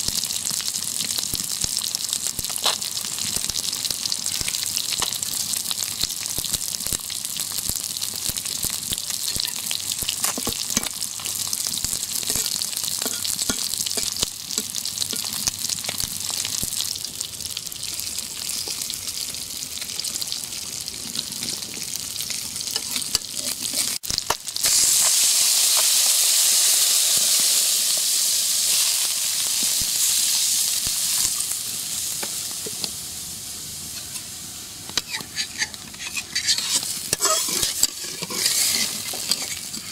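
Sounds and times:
fish frying in hot oil: 0.0 - 39.9
water hissing in hot pan: 23.1 - 39.9.

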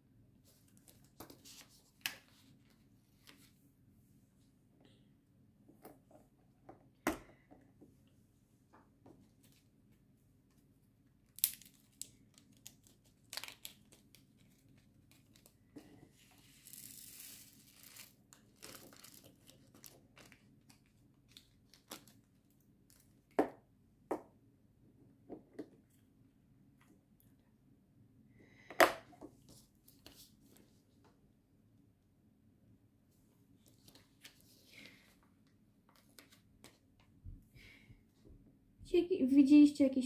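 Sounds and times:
plastic bags crinkling: 17.8 - 20.7.

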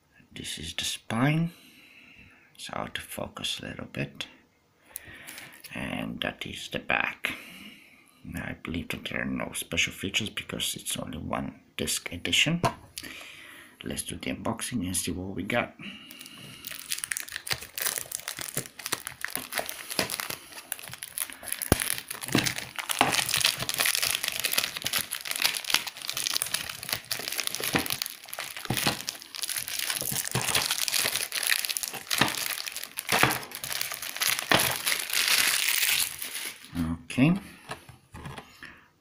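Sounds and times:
plastic shrink wrap crinkling: 16.1 - 36.8.

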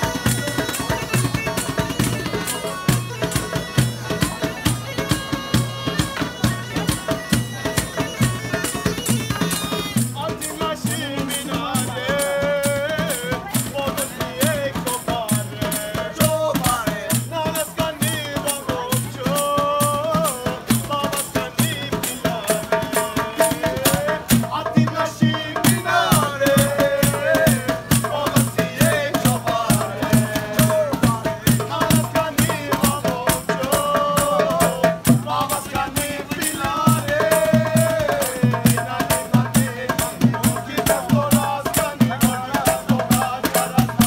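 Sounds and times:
hand drums fast beat: 0.0 - 44.0
man singing folk melody: 9.2 - 44.0.

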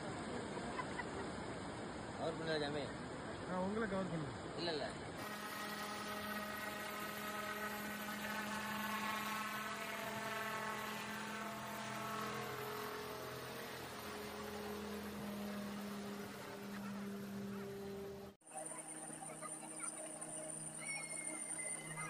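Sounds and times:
helicopter flying overhead: 5.2 - 22.0.

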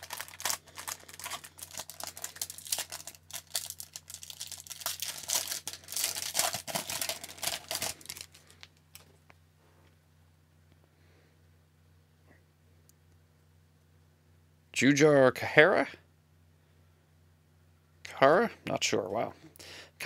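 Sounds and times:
foil wrapper crinkling and tearing: 0.0 - 9.1.

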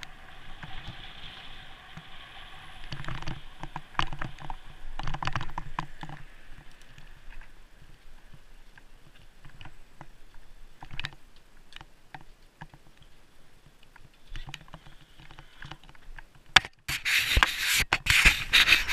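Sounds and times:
bicycle clicks and rattles: 2.8 - 7.5
hand scraping camera: 16.7 - 18.9.

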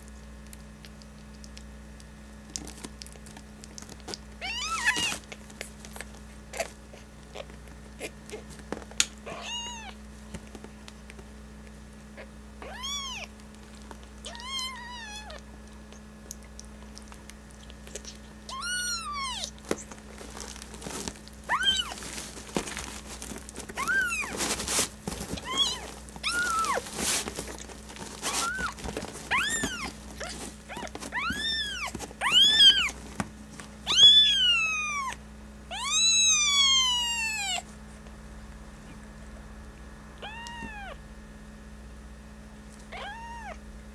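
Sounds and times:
steady low hum: 0.0 - 43.9
kitten mewing: 4.1 - 8.5, 9.2 - 10.0, 12.1 - 13.4, 14.2 - 20.0, 21.4 - 22.0, 23.7 - 24.4, 25.3 - 26.9, 27.5 - 33.0, 33.8 - 37.7, 40.2 - 41.0, 42.8 - 43.6.

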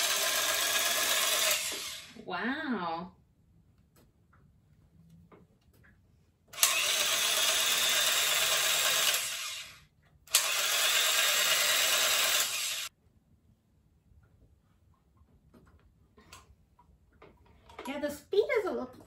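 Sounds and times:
tufting gun motor running: 0.0 - 2.1, 6.5 - 12.9.

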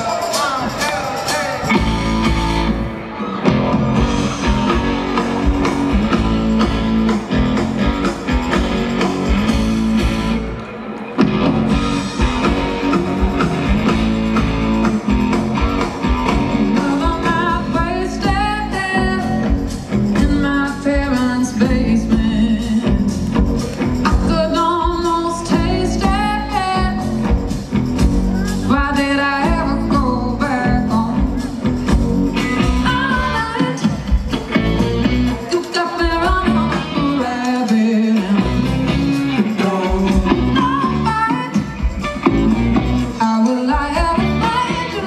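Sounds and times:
live band playing: 0.0 - 45.0
woman singing lead vocal: 16.4 - 23.3, 24.0 - 27.4, 28.4 - 31.7, 32.6 - 34.2, 35.4 - 42.0, 43.0 - 45.0.

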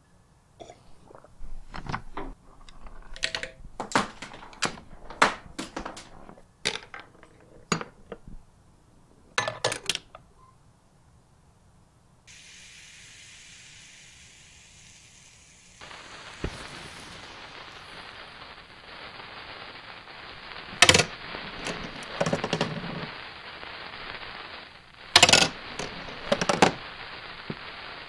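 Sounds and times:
gas burner hiss: 0.6 - 9.4, 12.3 - 28.0
clinks and knocks of hard objects: 1.7 - 8.2.

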